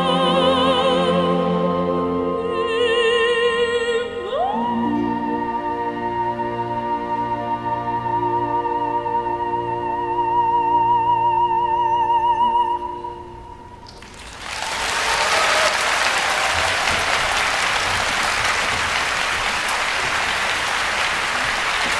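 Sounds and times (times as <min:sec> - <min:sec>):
audience applause: 0:13.9 - 0:21.9.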